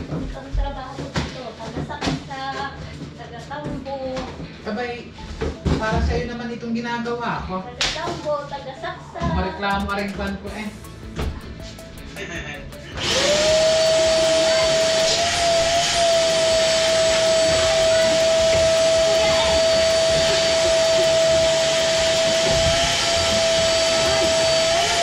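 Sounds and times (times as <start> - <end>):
vacuum cleaner motor whine: 12.9 - 25.0.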